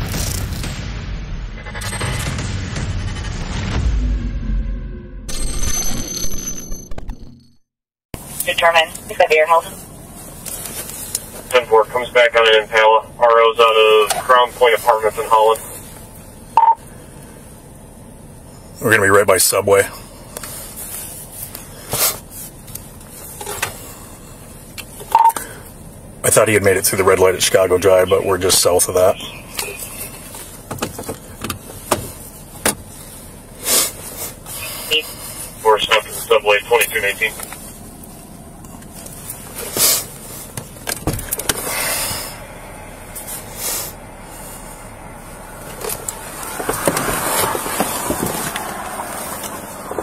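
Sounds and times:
low vehicle rumble: 0.0 - 6.1, 8.2 - 50.0
short beep: 5.3 - 7.6
car hum: 8.2 - 50.0.

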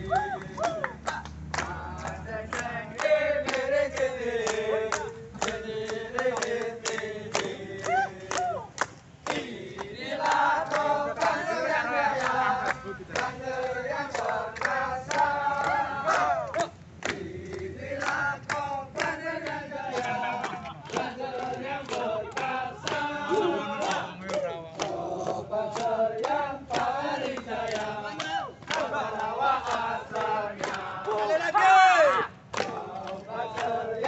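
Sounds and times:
men chanting and singing: 0.0 - 34.0
sharp rhythmic beats: 8.8 - 31.3.

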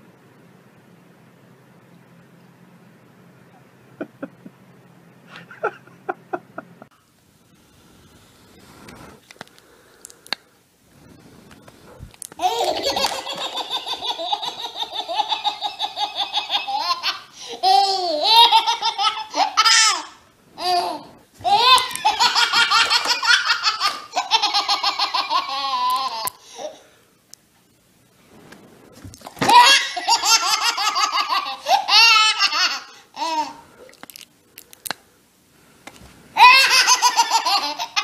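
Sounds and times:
baby laughing: 12.4 - 26.8, 29.4 - 33.6, 36.4 - 38.0.

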